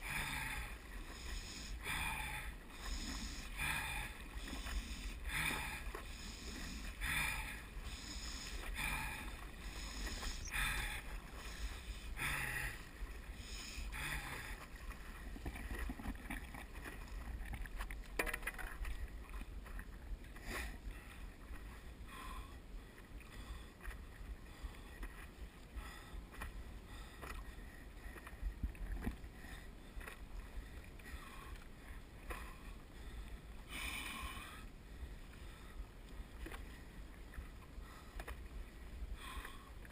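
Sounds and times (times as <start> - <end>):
paddle splashing in water: 0.0 - 21.8
faint water sounds: 0.0 - 39.9
steady low rumble: 0.0 - 39.9.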